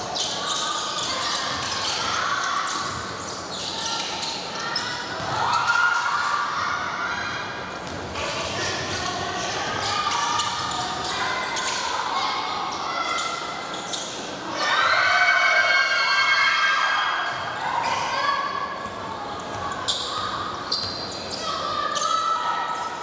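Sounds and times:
basketball bouncing: 7.8s - 8.9s.

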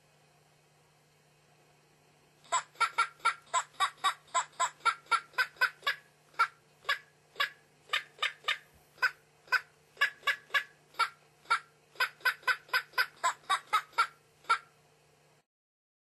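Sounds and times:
steady low hum: 0.0s - 15.4s
toy chicken clucking: 2.4s - 14.8s.

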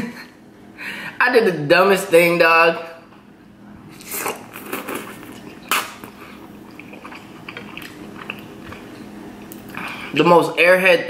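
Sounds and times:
man chewing noodles: 4.0s - 10.1s.

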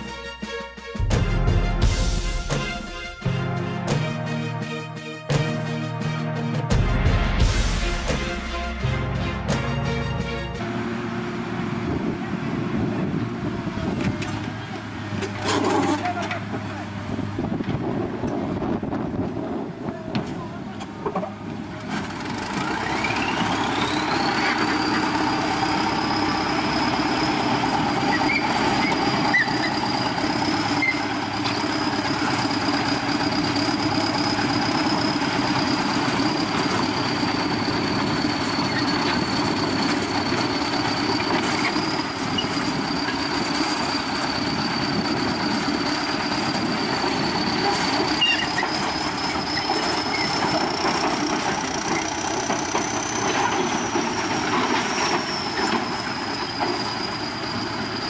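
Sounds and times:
bulldozer diesel engine revving: 21.5s - 58.0s.

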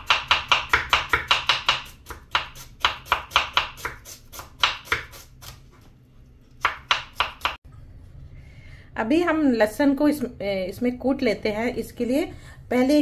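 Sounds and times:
knife slicing onion on board: 0.0s - 5.8s, 6.5s - 7.6s.

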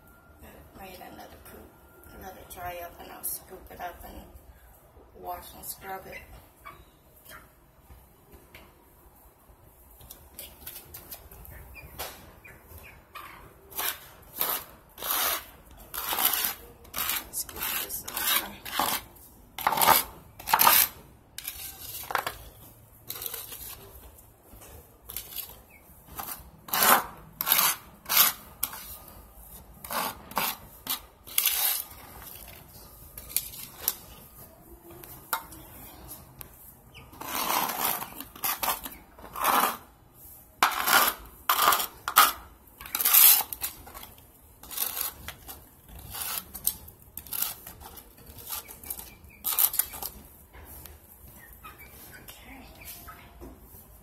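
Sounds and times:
bowl scraping across concrete: 13.7s - 24.0s, 25.1s - 34.4s, 36.9s - 50.2s.

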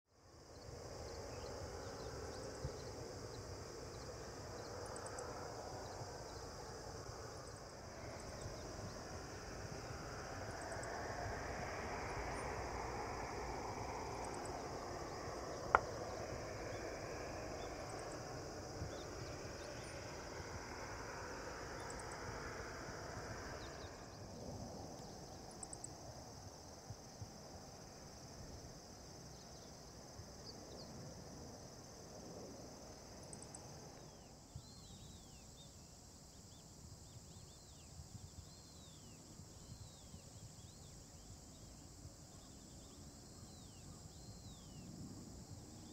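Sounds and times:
insect chirring: 0.3s - 45.9s
jet engine rumble: 0.7s - 28.8s.

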